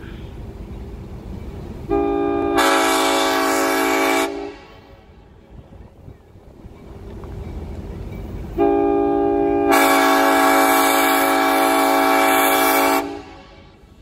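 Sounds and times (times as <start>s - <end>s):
locomotive rumble: 0.0s - 14.0s
locomotive air horn chord: 1.8s - 5.2s, 8.6s - 14.0s.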